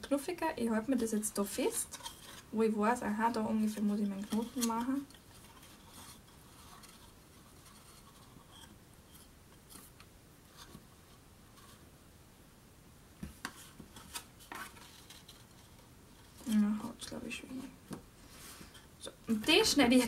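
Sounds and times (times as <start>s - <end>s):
rustling cardstock and twine: 0.9s - 11.8s, 13.4s - 20.0s
soft taps and crinkles: 13.2s - 17.1s, 17.8s - 18.8s.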